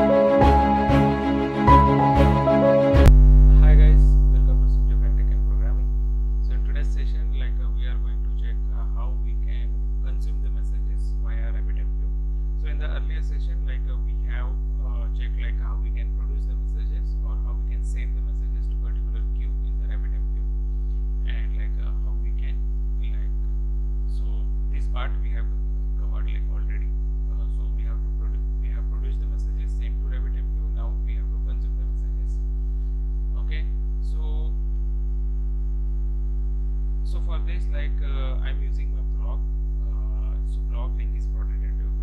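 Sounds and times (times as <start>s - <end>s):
background music: 0.0s - 3.2s
electrical mains hum: 0.0s - 42.0s.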